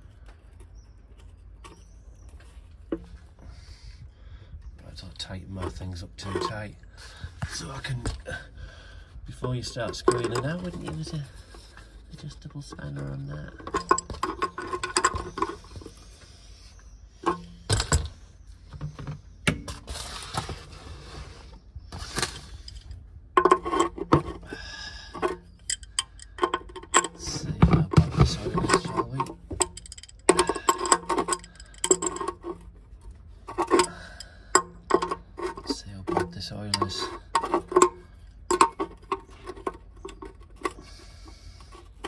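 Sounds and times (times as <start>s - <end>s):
spanner clinking and scraping on metal: 5.0s - 6.8s, 9.3s - 20.5s, 22.0s - 42.0s.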